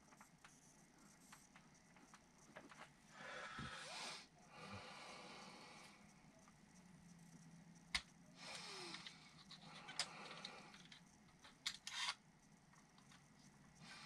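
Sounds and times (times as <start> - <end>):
soft breath: 3.1 - 6.2.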